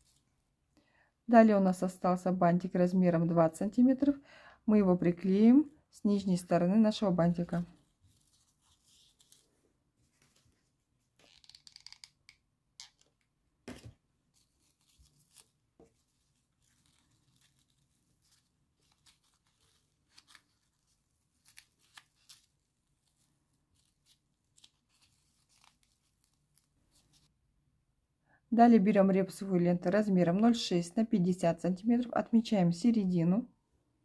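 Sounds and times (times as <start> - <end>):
fingers handling ribbon: 11.1 - 13.3, 14.3 - 27.3
scratchy rustle: 14.3 - 27.3.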